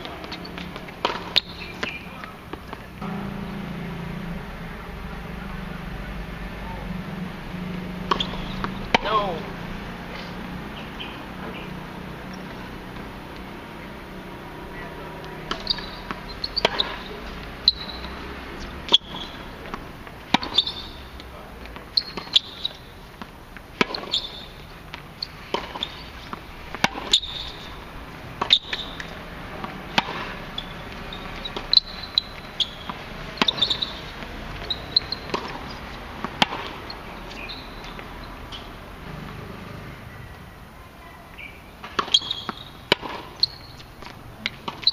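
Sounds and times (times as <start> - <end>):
tennis racket striking ball: 0.0 - 4.3, 7.6 - 10.4, 14.0 - 38.8, 41.4 - 44.9
tennis ball bouncing: 0.0 - 5.4, 7.5 - 39.9, 41.3 - 44.9.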